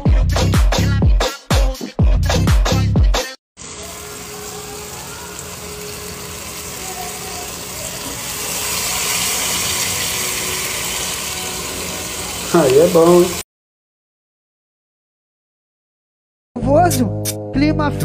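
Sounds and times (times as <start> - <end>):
pot hissing on stove: 3.6 - 13.4.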